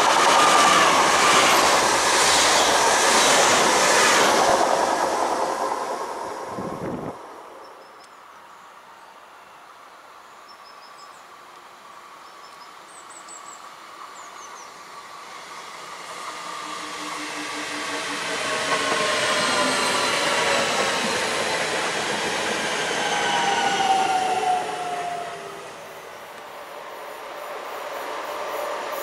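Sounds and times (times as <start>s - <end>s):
electric train approaching: 0.0s - 7.9s, 14.5s - 29.0s
passing train: 0.0s - 9.8s, 12.9s - 29.0s.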